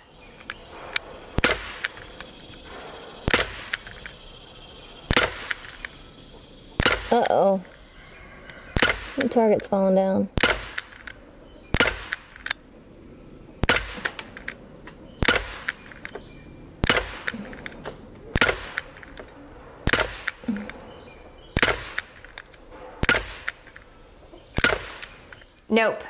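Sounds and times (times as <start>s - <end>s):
bb pistol shots popping: 0.7s - 4.2s, 5.0s - 6.0s, 6.8s - 7.4s, 8.8s - 9.3s, 10.3s - 12.6s, 13.6s - 14.6s, 15.2s - 16.2s, 16.8s - 20.5s, 21.5s - 23.9s, 24.5s - 25.4s.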